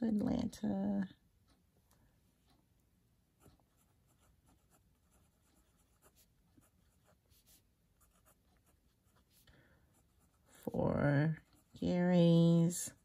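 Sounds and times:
pen scratching on paper: 3.4 - 13.0.

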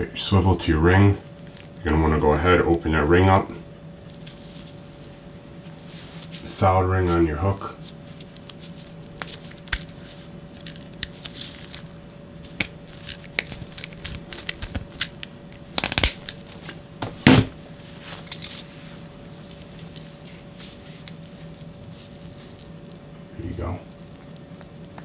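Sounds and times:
nitrile gloves crinkling: 4.0 - 6.6, 7.7 - 25.0
handling noises: 7.8 - 22.9.

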